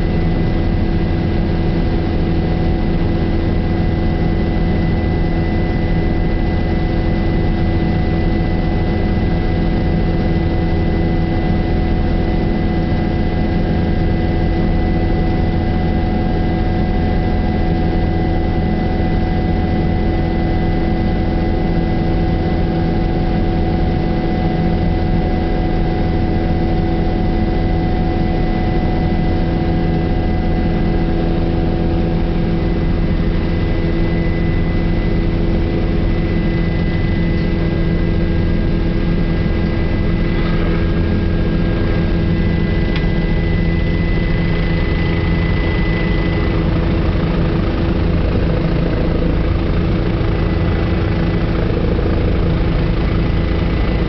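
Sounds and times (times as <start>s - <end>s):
helicopter engine and rotor drone: 0.0s - 54.0s
thin high whine: 29.4s - 47.0s.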